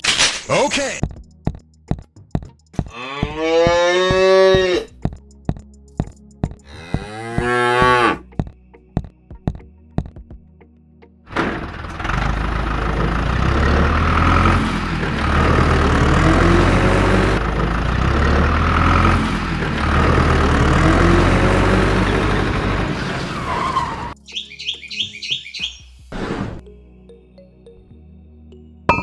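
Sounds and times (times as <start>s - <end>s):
tractor engine revving: 11.3s - 24.2s.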